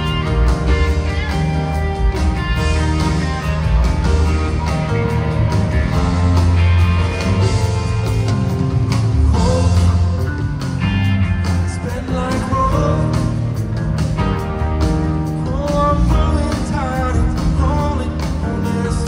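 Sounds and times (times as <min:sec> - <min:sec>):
live rock band: 0:00.0 - 0:19.0.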